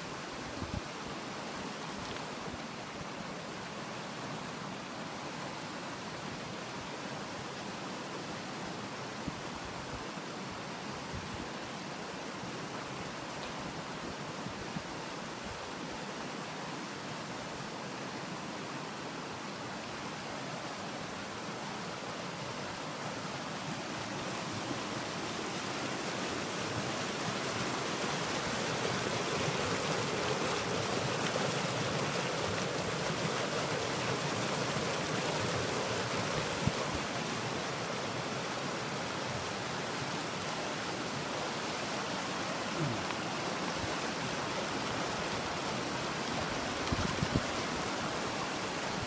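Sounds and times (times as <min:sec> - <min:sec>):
river rushing over rocks: 0:00.0 - 0:49.0.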